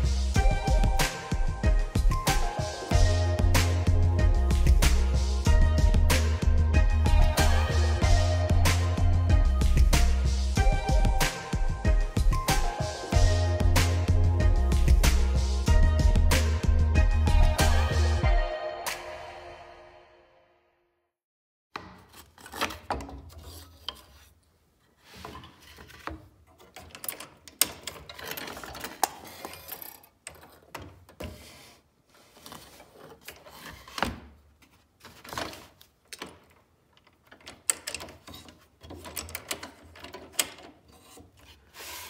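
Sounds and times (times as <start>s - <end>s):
plywood scraping on saw table: 40.8s - 42.0s.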